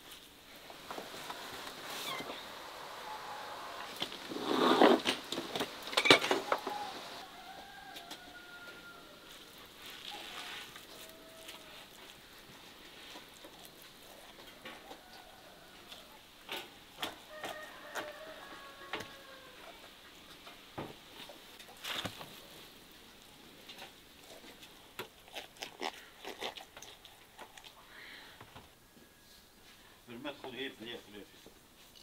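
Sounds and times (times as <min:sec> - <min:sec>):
hands rustling vegetables on tray: 0:00.0 - 0:07.2
chickens clucking: 0:00.7 - 0:07.3.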